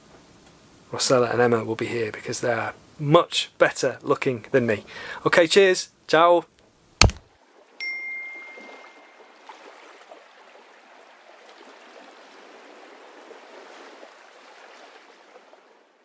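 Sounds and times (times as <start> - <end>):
short high ding: 7.8 - 9.2.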